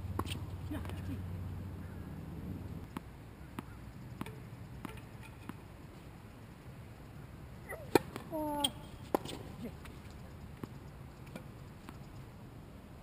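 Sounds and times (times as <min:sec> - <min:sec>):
tennis ball bouncing on court: 0:00.0 - 0:01.0, 0:02.8 - 0:05.6, 0:07.7 - 0:12.0
racket striking ball: 0:02.9 - 0:05.6, 0:07.7 - 0:09.5.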